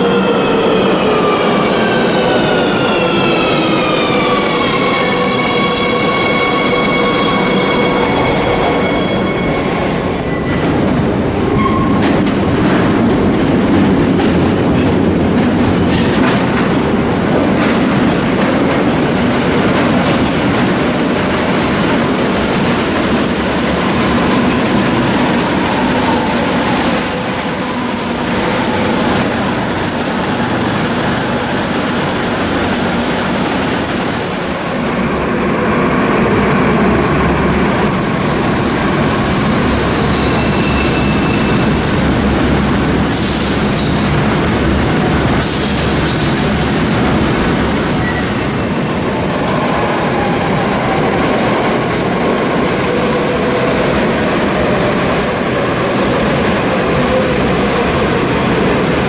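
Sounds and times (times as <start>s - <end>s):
train rumbling on rails: 0.0s - 59.0s
high wavering wheel squeal: 27.0s - 35.6s.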